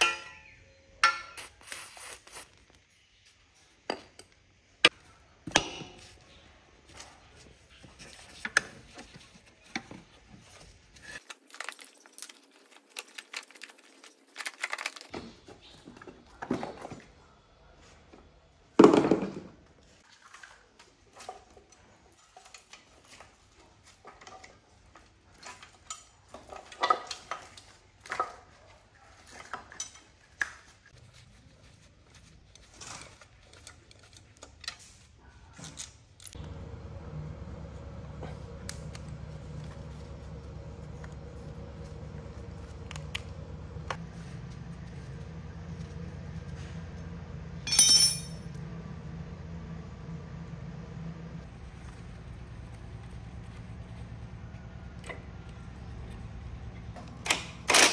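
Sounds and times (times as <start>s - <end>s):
metal tools clinking and knocking: 47.6s - 48.6s.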